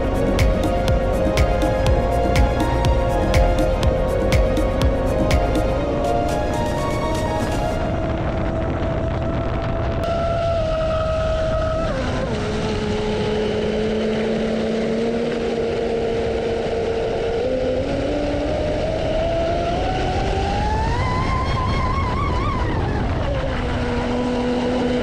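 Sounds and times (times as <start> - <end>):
constant noisy rush: 0.0 - 25.0.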